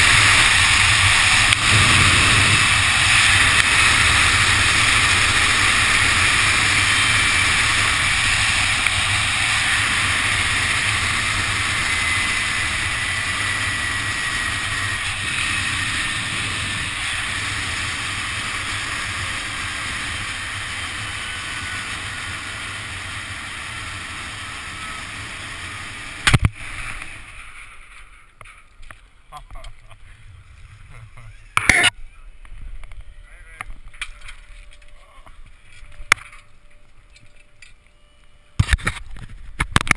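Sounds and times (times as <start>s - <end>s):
wind rushing: 0.0s - 17.4s
zip-line trolley on cable: 0.0s - 28.3s
pulley whine: 0.0s - 28.4s.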